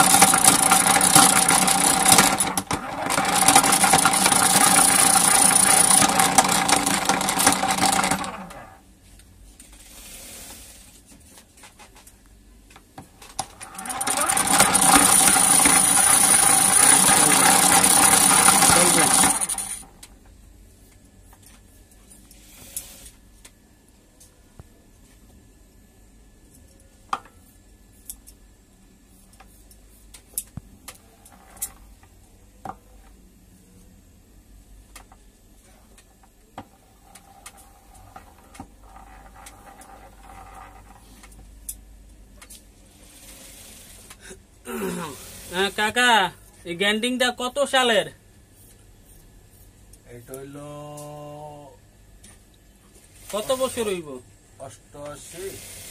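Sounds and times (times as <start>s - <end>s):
grinder grinding metal with whine: 0.0s - 8.8s, 13.4s - 19.9s.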